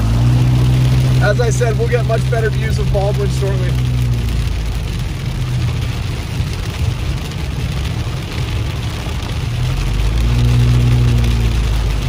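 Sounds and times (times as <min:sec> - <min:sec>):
car engine hum: 0:00.0 - 0:12.0
heavy rain on car windshield: 0:00.0 - 0:12.0
tyres on wet road: 0:00.0 - 0:12.0.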